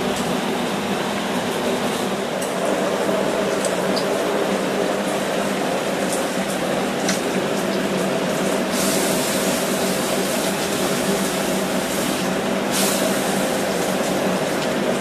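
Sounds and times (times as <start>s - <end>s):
hot steel hissing in water: 8.4s - 15.0s.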